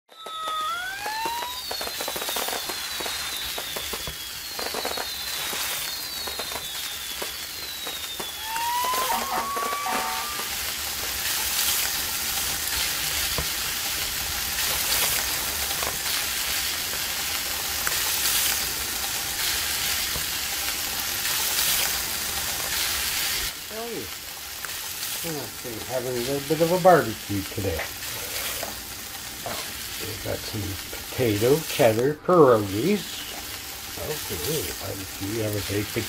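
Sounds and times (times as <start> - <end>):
short falling chirps: 0.1 - 10.6
food sizzling on a grill: 0.2 - 36.0.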